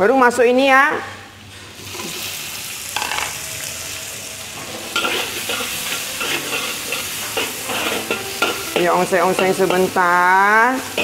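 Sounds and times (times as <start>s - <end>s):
peppers sizzling in a wok: 1.3s - 11.0s
metal spatula scraping wok: 4.4s - 10.2s.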